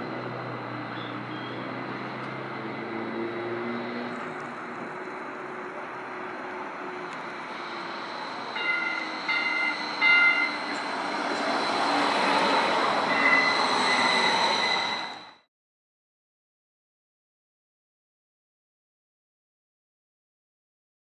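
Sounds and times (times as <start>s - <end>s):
streetcar passing: 0.0s - 15.5s
wheel squeal: 0.9s - 1.7s, 7.4s - 15.5s
streetcar warning bell: 6.6s - 15.2s.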